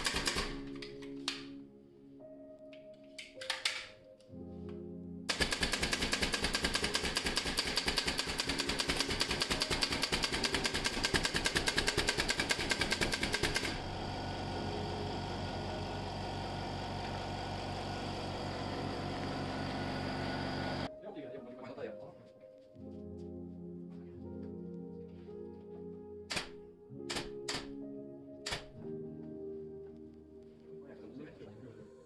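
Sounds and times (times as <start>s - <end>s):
machine rattling and humming: 5.3s - 20.9s.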